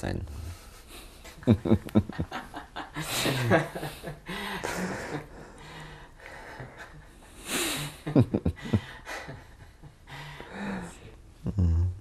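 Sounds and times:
man laughing: 0:01.4 - 0:05.2, 0:08.0 - 0:09.4, 0:11.4 - 0:12.0.

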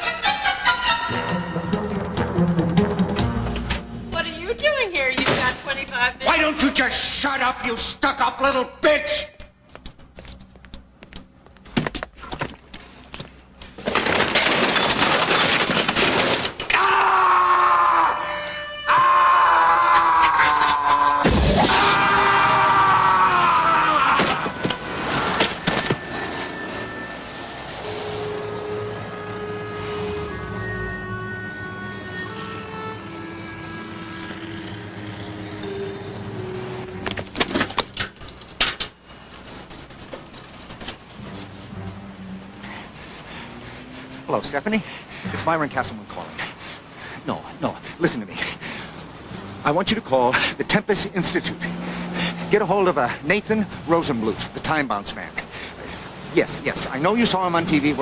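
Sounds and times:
city street traffic hum: 0:00.0 - 0:08.4, 0:09.1 - 0:13.9, 0:20.8 - 0:58.0
desk items clattering: 0:13.6 - 0:16.7
objects crashing and breaking: 0:13.8 - 0:16.7, 0:19.9 - 0:22.1
man screaming: 0:16.7 - 0:24.6.

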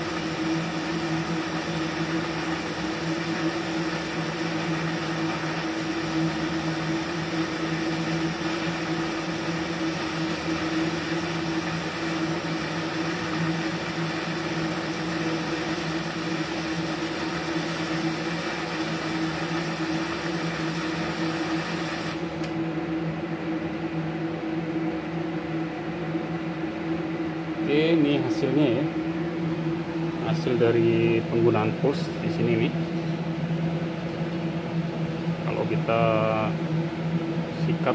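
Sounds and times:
welding arc hiss and buzz: 0:00.0 - 0:22.6
machine hum: 0:00.0 - 0:37.9.

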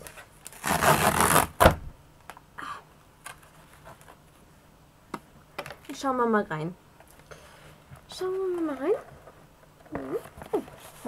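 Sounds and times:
packaging tearing: 0:00.4 - 0:01.7.

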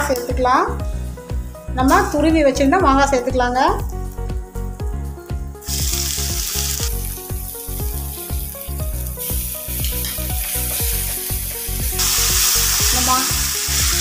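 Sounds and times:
background music with steady beat: 0:00.0 - 0:14.0
food sizzling in hot oil: 0:05.6 - 0:14.0.

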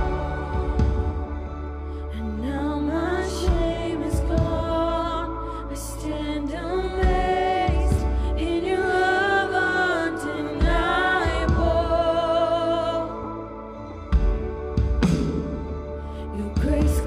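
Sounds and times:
woman singing into microphone: 0:00.0 - 0:13.8, 0:16.2 - 0:17.0
instrumental backing music: 0:00.0 - 0:17.0.

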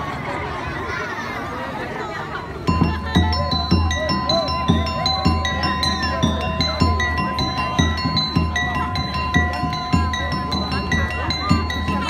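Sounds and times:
ringing metal percussion: 0:02.6 - 0:12.0
bass drum beating: 0:02.7 - 0:12.0.

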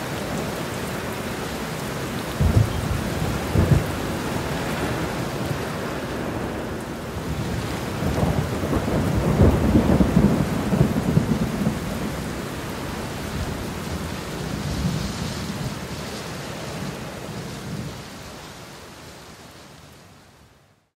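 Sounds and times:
steady rain: 0:00.0 - 0:20.9
low rolling thunder: 0:02.3 - 0:18.0.

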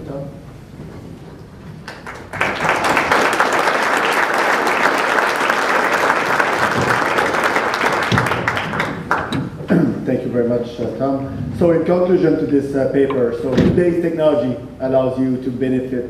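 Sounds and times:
audience applauding: 0:01.8 - 0:09.4.

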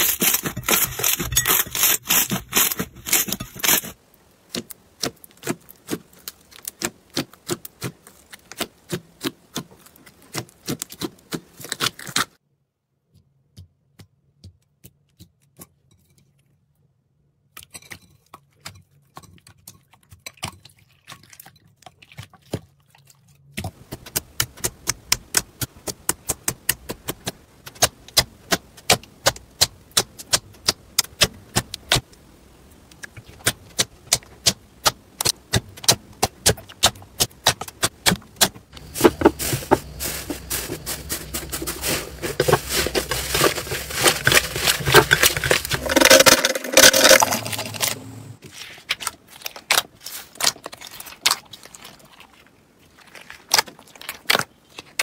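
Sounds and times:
thick slime crackling: 0:38.8 - 0:46.2, 0:49.3 - 0:55.0.

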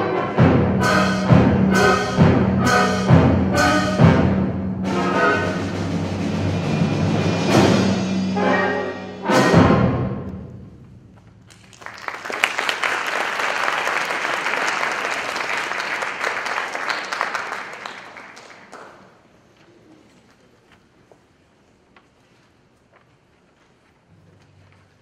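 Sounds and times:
audience applause: 0:11.5 - 0:19.2.

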